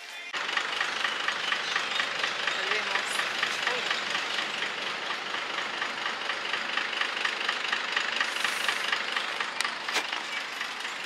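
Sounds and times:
bus engine idling: 0.1 - 11.0
short hiss: 8.3 - 8.9.

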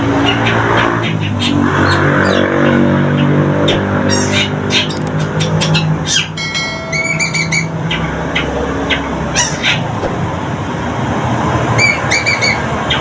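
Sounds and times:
bird scratchy chirps: 0.1 - 10.0
bird sharp clicking calls: 0.2 - 10.2.

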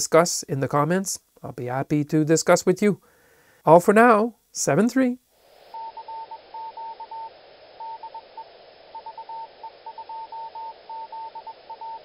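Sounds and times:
radio receiver hiss: 3.0 - 12.0
morse code tone: 5.8 - 12.0.

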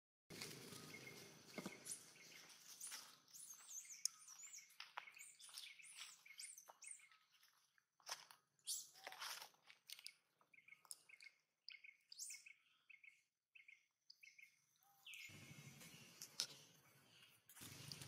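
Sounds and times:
dry leaves rustling: 0.3 - 3.1
faint high-pitched chirps: 0.4 - 18.0.

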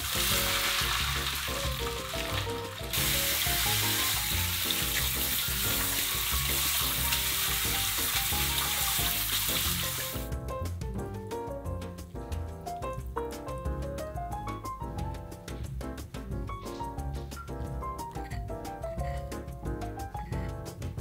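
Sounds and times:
faucet spraying water: 0.0 - 10.3
water poured into strainer: 0.0 - 10.3
soft background music: 0.0 - 21.0.

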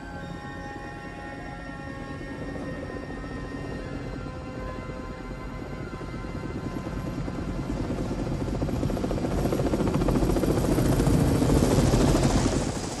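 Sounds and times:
helicopter rotor chop: 7.1 - 13.0.

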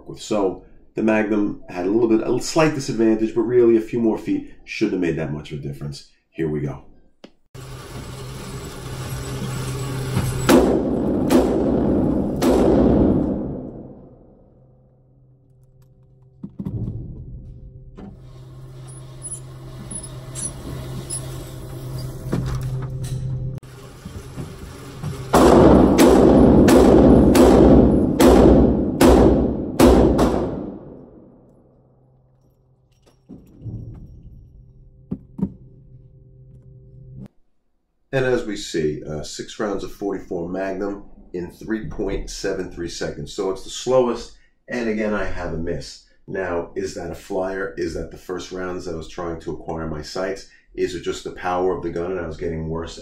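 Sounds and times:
revolver gunshots ringing indoors: 10.5 - 14.7, 25.4 - 31.8.

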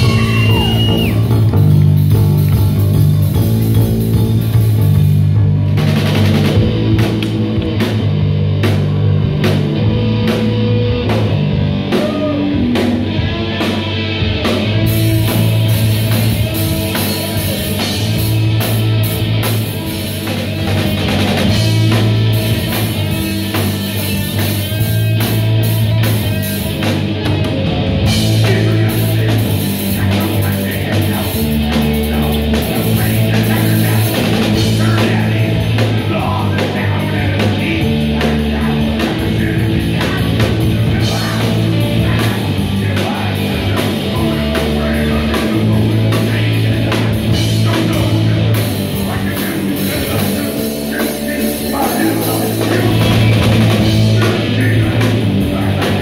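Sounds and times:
drum kit: 0.0 - 56.0
electric bass: 0.0 - 56.0
electric guitar: 0.0 - 56.0.

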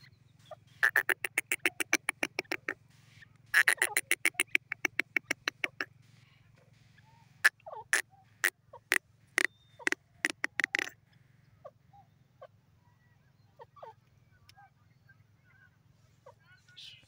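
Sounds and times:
bird calling sharp notes: 0.7 - 6.2, 7.4 - 11.0.

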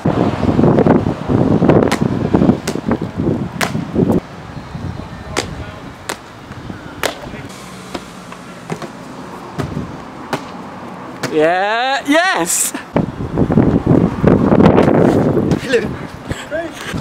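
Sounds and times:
wind buffeting microphone: 0.0 - 7.6, 9.4 - 10.3, 12.9 - 17.0.

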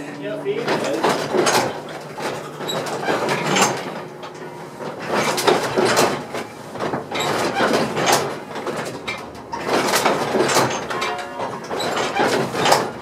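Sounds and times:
church bells ringing: 10.9 - 11.7.

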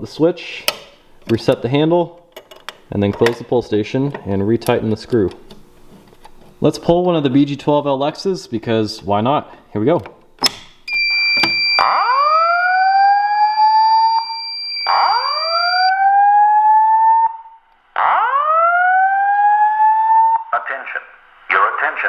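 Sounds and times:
fire alarm pull station click: 10.4 - 12.2
high electronic beep: 10.9 - 15.9.

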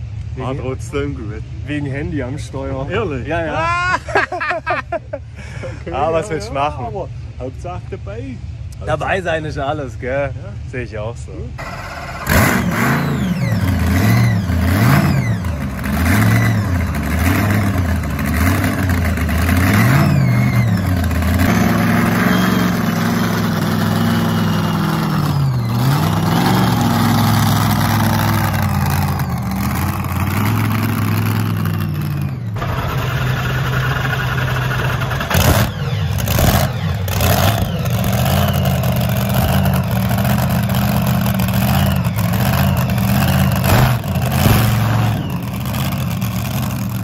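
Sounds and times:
tractor engine revving: 11.6 - 47.0.

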